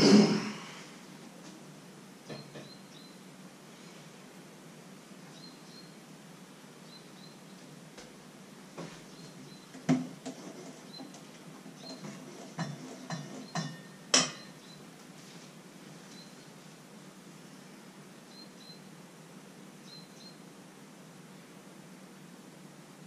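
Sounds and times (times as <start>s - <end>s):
utensils and dishes clinking: 11.9s - 14.6s.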